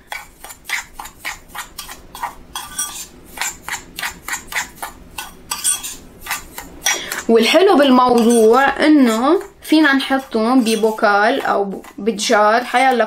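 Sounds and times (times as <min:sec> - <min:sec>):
spoon scraping salt in bowl: 0:00.0 - 0:13.0.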